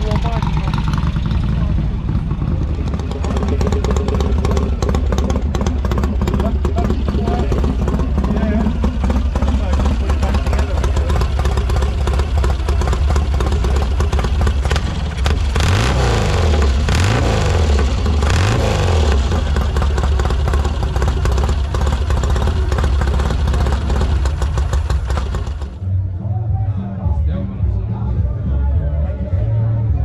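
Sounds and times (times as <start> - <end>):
motorcycle engine idling and revving: 0.0 - 25.9.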